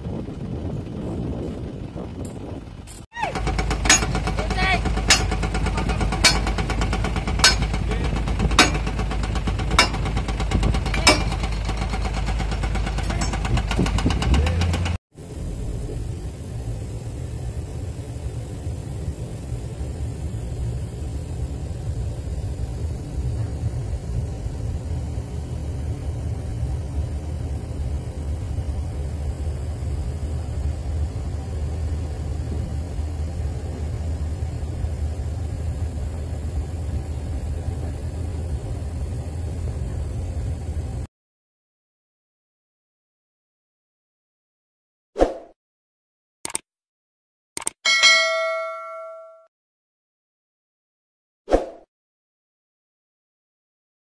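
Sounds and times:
diesel engine running: 0:00.0 - 0:41.1
motor grader diesel engine: 0:00.0 - 0:41.1
sharp knocks: 0:03.6 - 0:04.4, 0:05.0 - 0:07.8, 0:08.6 - 0:09.0.

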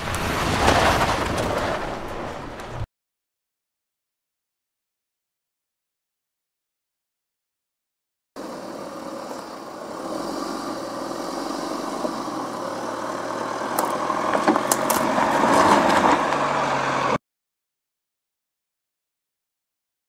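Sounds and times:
suv engine running: 0:08.4 - 0:17.2
tyres crunching over gravel: 0:09.1 - 0:16.6.

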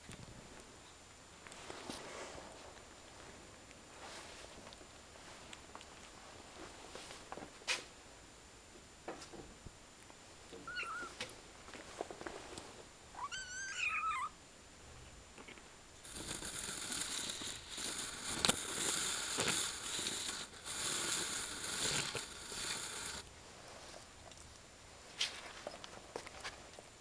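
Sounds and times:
crackly rustling with clicks: 0:00.0 - 0:07.9, 0:15.3 - 0:27.0
kitten mewing: 0:13.2 - 0:14.4.

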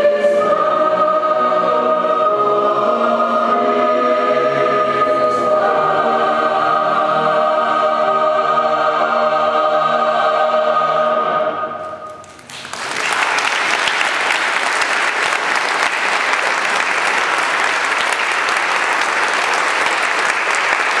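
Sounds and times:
choir singing: 0:00.0 - 0:12.2
audience applause: 0:12.1 - 0:21.0.

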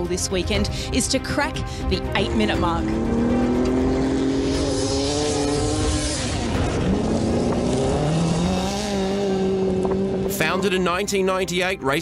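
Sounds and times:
race car engine revving: 0:02.1 - 0:10.8.

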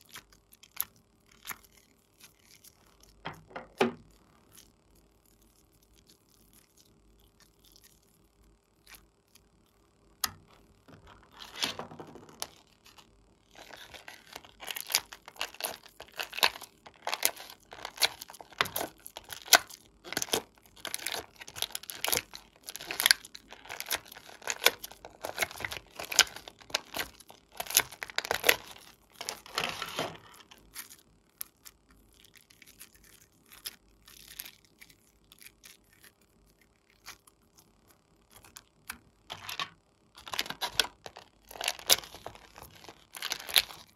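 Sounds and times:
plastic tray crackling: 0:10.2 - 0:30.9, 0:39.3 - 0:43.9.

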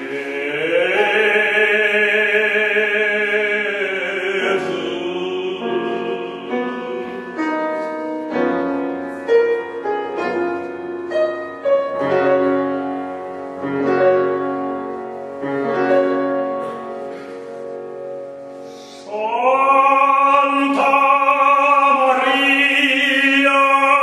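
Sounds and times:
man singing operatic note: 0:00.0 - 0:07.9, 0:18.7 - 0:24.0
piano notes and chords: 0:00.0 - 0:24.0.

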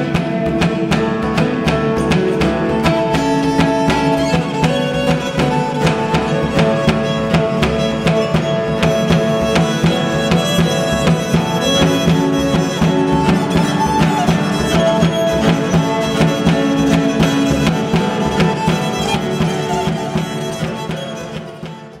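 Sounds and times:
hammered string strokes: 0:00.0 - 0:22.0
hand drum strokes: 0:00.0 - 0:22.0
plucked strings: 0:00.0 - 0:22.0
violin long held notes: 0:00.0 - 0:22.0.

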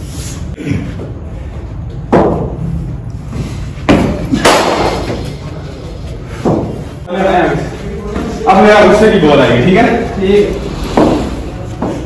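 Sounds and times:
ball hit with cricket bat: 0:03.9 - 0:05.2.

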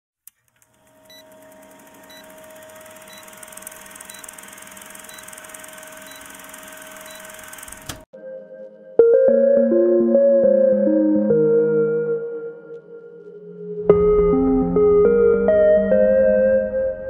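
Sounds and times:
projector ticks: 0:00.2 - 0:08.1
film projector whirring: 0:00.3 - 0:08.1
sharp click: 0:07.2 - 0:08.1.

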